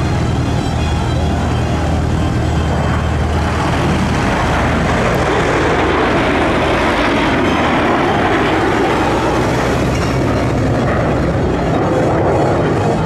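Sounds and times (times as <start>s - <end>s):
jets flying past: 0.0s - 13.0s.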